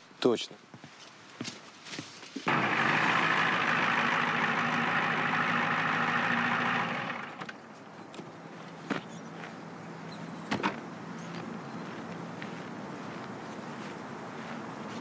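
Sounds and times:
truck driving through snow: 0:02.5 - 0:07.4
engine idling: 0:02.5 - 0:07.6.

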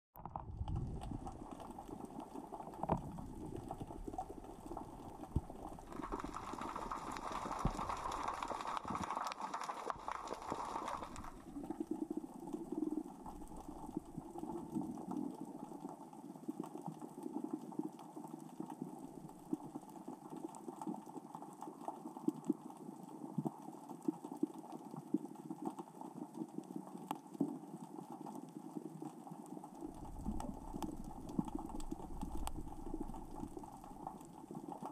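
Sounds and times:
underwater rocks clicking: 0:00.2 - 0:34.9
underwater hiss: 0:05.9 - 0:11.5.

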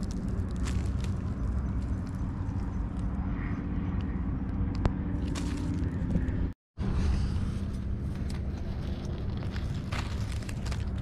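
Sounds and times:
dry leaves crackling: 0:00.0 - 0:03.0, 0:05.2 - 0:06.3, 0:08.1 - 0:11.0
steady low rumble: 0:00.0 - 0:11.0.

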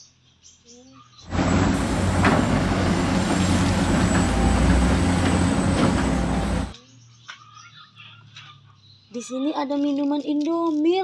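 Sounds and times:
excavator diesel engine under load: 0:01.3 - 0:06.8
sharp knocks: 0:01.5 - 0:06.7.

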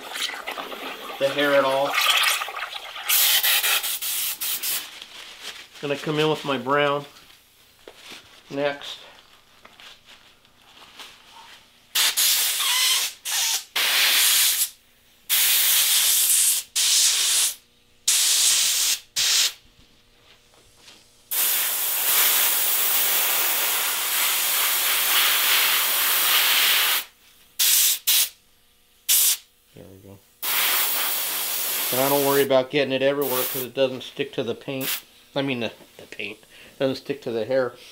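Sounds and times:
airbrush hissing: 0:03.0 - 0:04.8, 0:15.3 - 0:19.6, 0:21.3 - 0:28.4, 0:29.1 - 0:29.4, 0:30.4 - 0:32.5, 0:33.2 - 0:33.7, 0:34.8 - 0:35.1.

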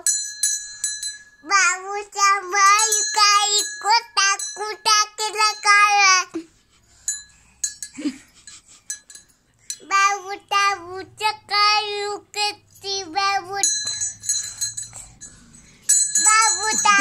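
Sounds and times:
light clinks: 0:00.1 - 0:01.4, 0:07.0 - 0:09.9, 0:13.6 - 0:17.0
child singing: 0:01.4 - 0:06.4, 0:09.8 - 0:14.0, 0:16.2 - 0:17.0.

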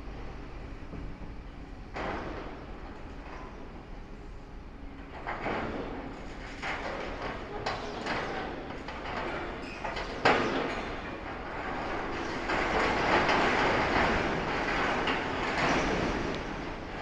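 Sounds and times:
metal scraping and creaking: 0:05.2 - 0:17.0.

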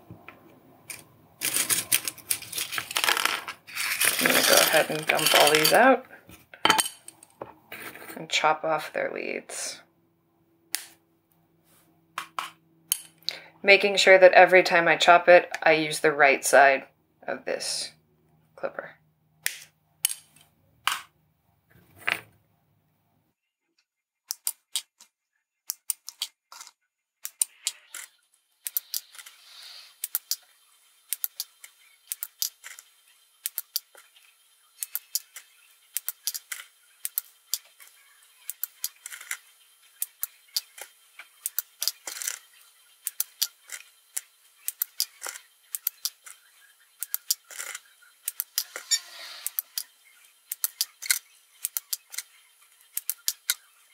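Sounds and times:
leds dropping into plastic dish: 0:00.9 - 0:05.9.

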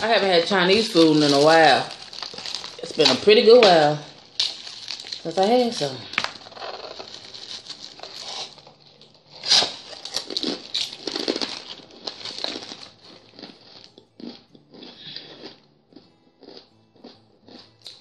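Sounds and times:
plastic wrapper crinkling: 0:00.0 - 0:13.2.

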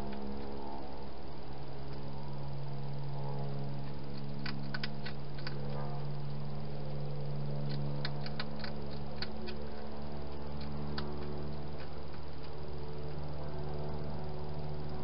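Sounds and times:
steady low hum: 0:00.0 - 0:15.0
hedgehog eating crunches: 0:03.4 - 0:14.3.

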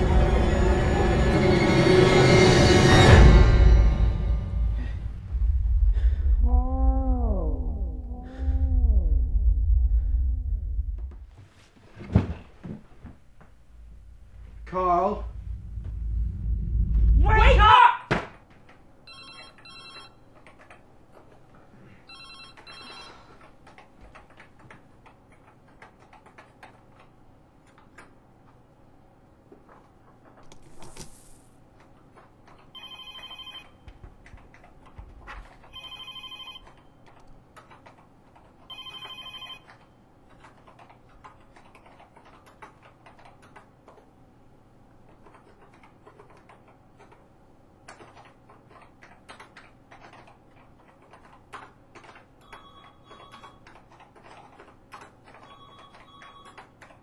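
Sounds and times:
telephone electronic trill ringing: 0:19.1 - 0:20.2, 0:22.1 - 0:23.3, 0:32.8 - 0:33.8, 0:35.7 - 0:36.7, 0:38.7 - 0:39.7.

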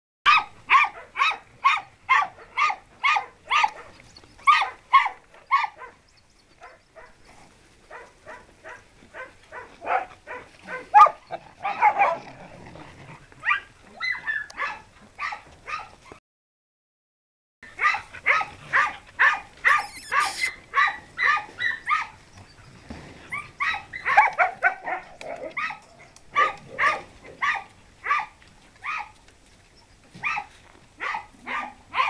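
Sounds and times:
dogs barking: 0:00.3 - 0:06.0, 0:06.6 - 0:07.2, 0:07.9 - 0:12.4, 0:13.4 - 0:16.0, 0:17.7 - 0:22.2, 0:23.3 - 0:29.2, 0:30.2 - 0:32.0.

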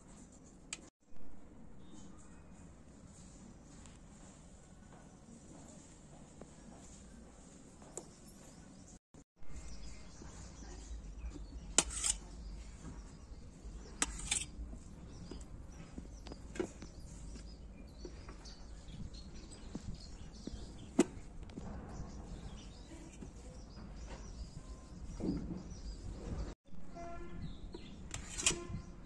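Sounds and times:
knife cutting fruit on a metal plate: 0:10.6 - 0:13.1, 0:13.8 - 0:15.4, 0:27.8 - 0:28.8.

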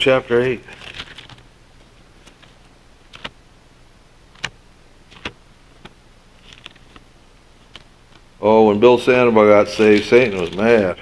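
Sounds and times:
faint steady hum: 0:00.0 - 0:11.0
pages being turned: 0:00.3 - 0:03.4, 0:04.4 - 0:08.3, 0:09.6 - 0:11.0.

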